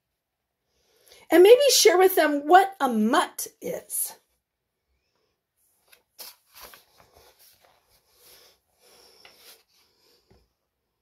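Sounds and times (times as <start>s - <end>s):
paper page turning: 5.8s - 8.4s.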